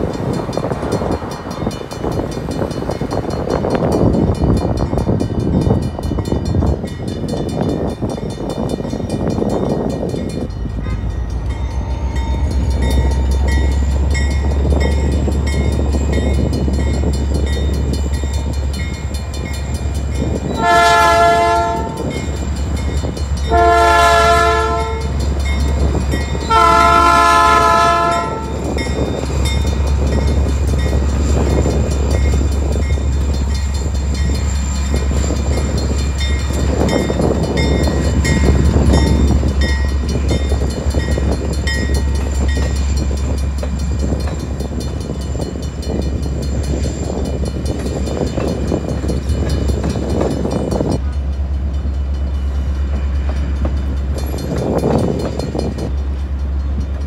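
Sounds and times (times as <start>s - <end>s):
crossing bell ringing: 0.0s - 57.0s
train rumble: 0.0s - 57.0s
train horn blasts: 20.5s - 22.2s, 23.5s - 25.2s, 26.5s - 28.7s.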